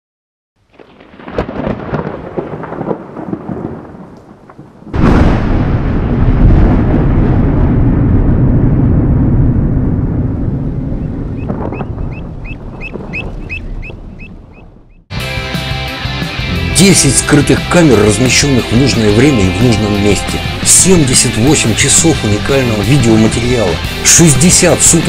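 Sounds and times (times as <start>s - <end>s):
rain pattering: 0.6s - 7.1s, 9.8s - 15.0s
loud thunderclap with rumble: 0.7s - 15.0s
bird chirping rapidly: 11.0s - 15.1s.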